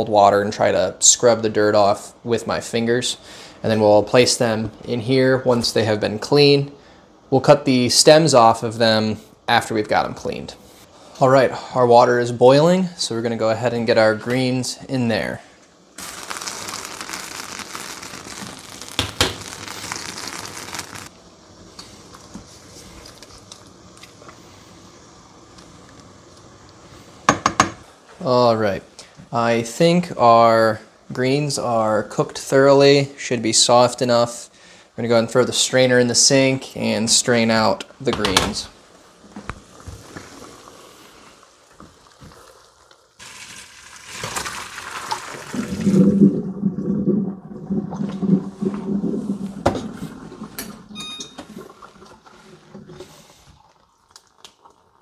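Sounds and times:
faint hiss: 2.0s - 46.2s
water boiling in a pot: 15.9s - 27.4s, 39.0s - 55.0s
water poured into a strainer: 43.2s - 51.0s
water splashing and rushing down sink: 43.2s - 53.3s.

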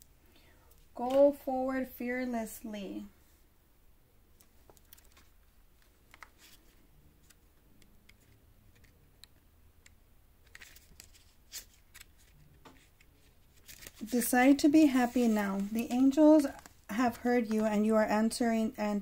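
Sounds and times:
cards clicking and rustling: 4.6s - 14.1s.

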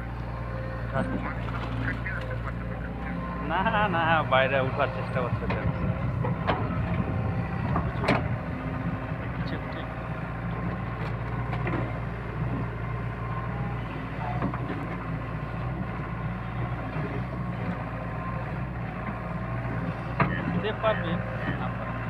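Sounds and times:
excavator diesel engine running: 0.0s - 22.0s.

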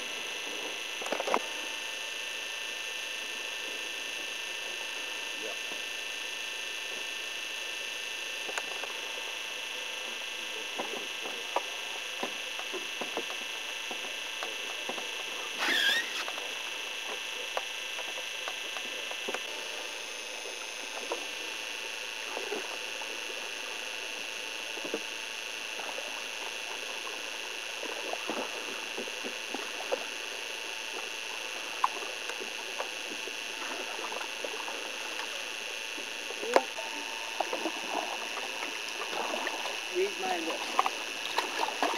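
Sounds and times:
constant high-pitched whine: 0.0s - 41.9s
paddle strokes in water: 27.8s - 41.9s.

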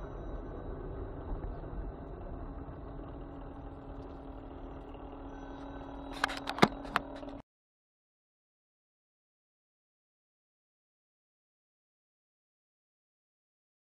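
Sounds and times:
car engine and road hum: 0.1s - 7.4s.

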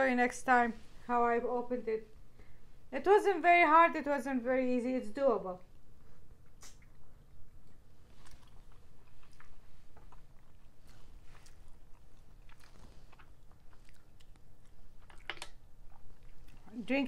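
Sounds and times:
chewing: 6.4s - 16.9s.

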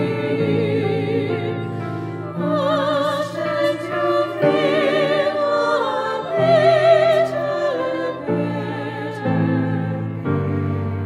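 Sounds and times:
women's choir singing: 0.0s - 11.0s.

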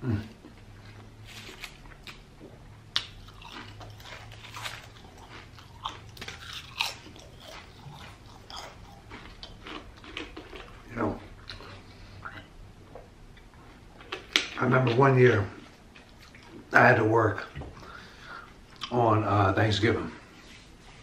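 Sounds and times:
potato chips crunching: 0.2s - 2.3s, 2.9s - 12.4s.

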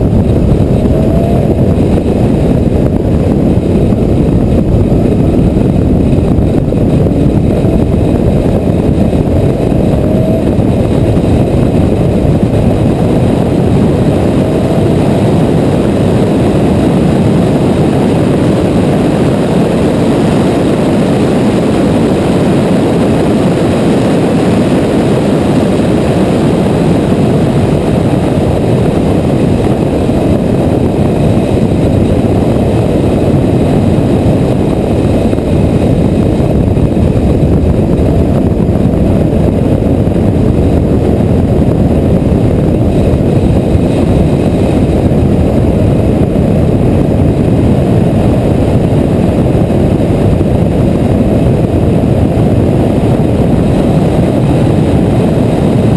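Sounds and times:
road noise: 0.0s - 22.3s
car engine at speed: 0.0s - 55.9s
rushing wind: 0.0s - 55.9s.

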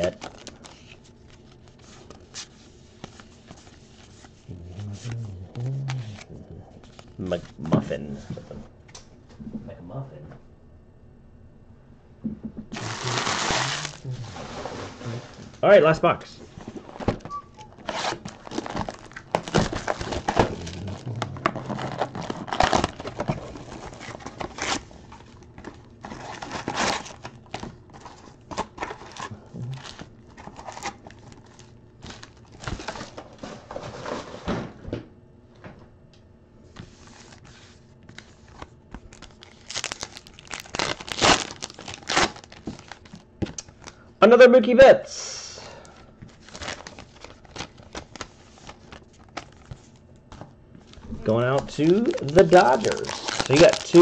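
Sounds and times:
wrappers crinkling and tearing: 0.0s - 7.6s, 12.7s - 15.2s, 17.7s - 33.4s, 37.0s - 44.0s, 46.3s - 50.0s, 50.8s - 54.0s.

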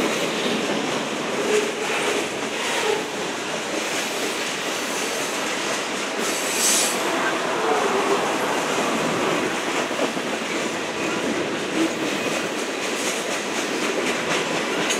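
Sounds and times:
freight train wheels rumbling: 0.0s - 14.9s
clatter at rail joints: 8.6s - 14.9s.

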